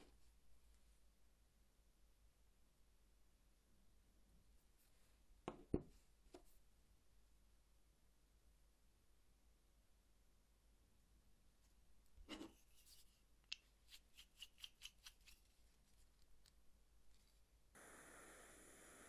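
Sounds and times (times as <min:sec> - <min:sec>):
butane heater hissing: 0:17.8 - 0:19.0.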